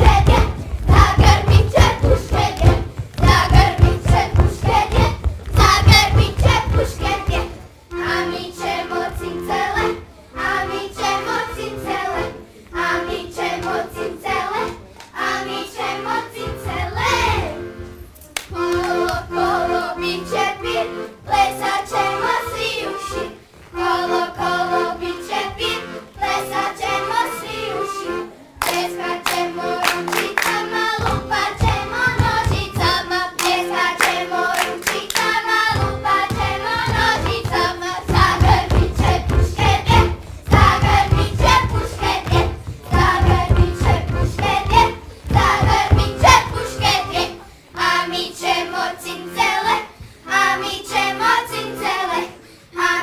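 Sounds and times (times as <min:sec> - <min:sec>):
low thuds: 0:00.0 - 0:07.6, 0:35.7 - 0:47.2
children singing: 0:00.0 - 0:17.8, 0:18.6 - 0:53.0
sharp handclaps: 0:28.6 - 0:30.6.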